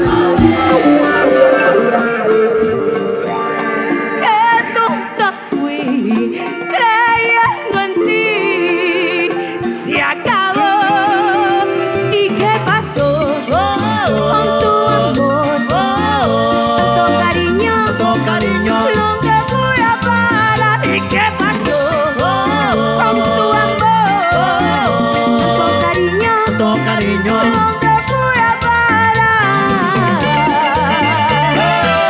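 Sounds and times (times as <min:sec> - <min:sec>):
bass: 0:00.0 - 0:06.2, 0:08.7 - 0:32.0
vibrato lead melody: 0:00.0 - 0:09.3, 0:10.0 - 0:32.0
shaker-like percussion: 0:13.0 - 0:32.0.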